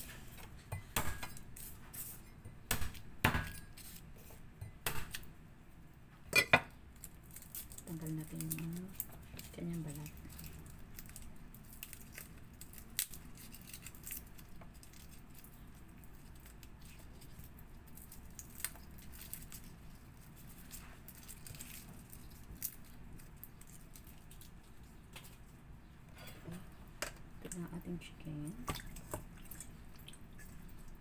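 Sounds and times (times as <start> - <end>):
papery garlic skins crackling: 6.8 - 26.3.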